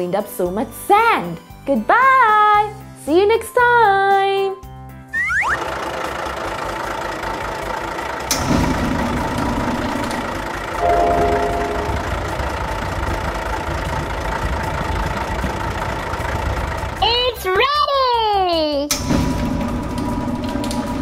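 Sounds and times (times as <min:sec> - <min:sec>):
heavy engine idling: 0:05.6 - 0:17.6, 0:18.9 - 0:21.0
short pitched tone: 0:10.8 - 0:12.4.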